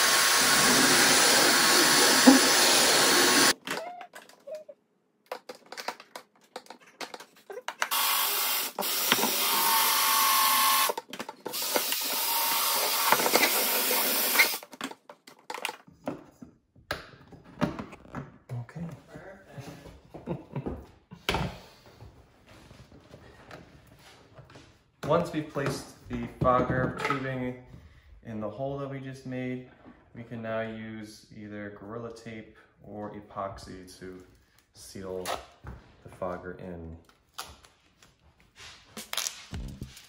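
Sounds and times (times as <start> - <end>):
drill grinding plastic: 0.0 - 3.6, 7.9 - 14.7.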